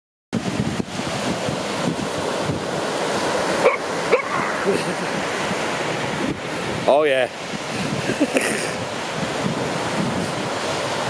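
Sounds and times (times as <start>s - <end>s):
steady rushing noise: 0.4s - 11.0s
yelp-like animal call: 3.7s - 4.7s.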